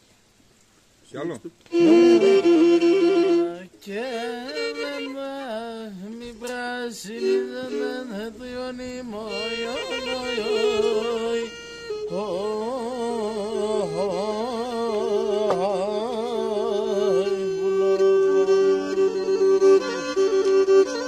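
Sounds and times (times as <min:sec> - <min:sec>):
bowed string folk melody: 0:01.2 - 0:21.0.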